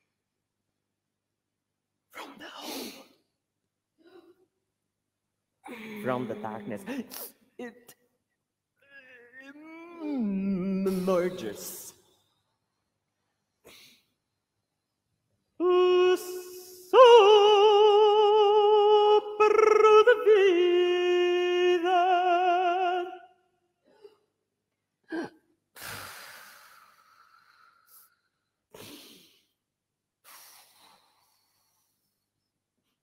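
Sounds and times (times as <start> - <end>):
person singing with vibrato: 8.8 - 11.9, 15.6 - 23.4.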